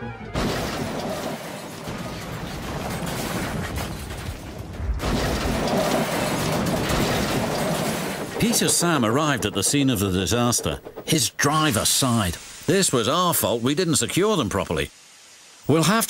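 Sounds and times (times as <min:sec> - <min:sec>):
trucks crashing and breaking apart: 0:00.3 - 0:11.0
wreckage rumbling and clattering: 0:00.4 - 0:11.2
freight trucks clattering on track: 0:00.4 - 0:11.3.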